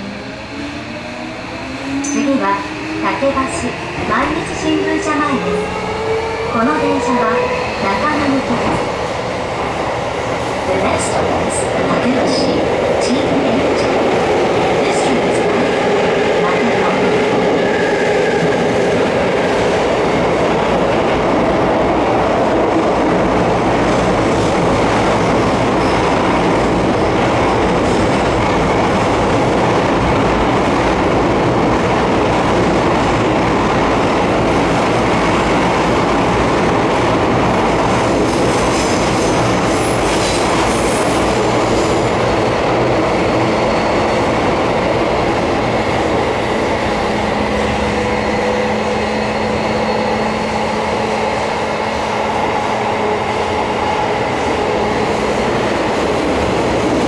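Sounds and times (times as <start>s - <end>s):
subway wheels rumbling on rail: 0.0s - 57.0s.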